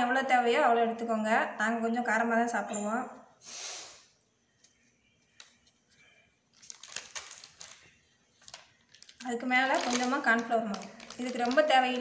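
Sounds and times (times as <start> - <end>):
plastic packet crinkling: 6.5 - 12.0
powder shaken from packet: 8.5 - 12.0.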